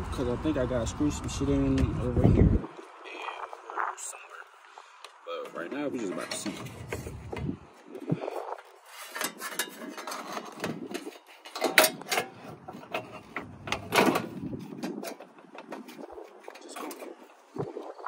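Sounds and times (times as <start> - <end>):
plastic parts clicking and rattling: 9.1 - 17.1.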